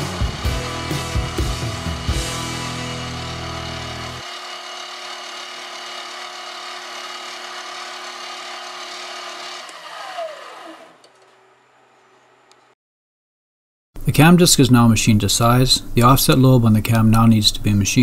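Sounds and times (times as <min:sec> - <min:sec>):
metal lathe running: 0:00.0 - 0:12.6
turning tool cutting steel: 0:00.0 - 0:12.6
motor spinning down: 0:00.0 - 0:12.8.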